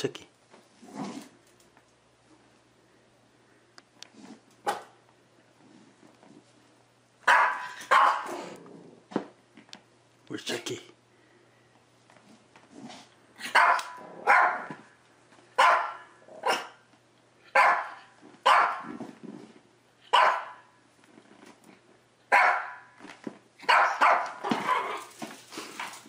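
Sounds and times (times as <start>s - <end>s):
puppy barking: 4.6s - 5.0s, 7.2s - 8.4s, 13.4s - 14.8s, 15.6s - 16.8s, 17.5s - 18.9s, 20.1s - 20.7s, 22.3s - 23.0s, 23.6s - 25.1s.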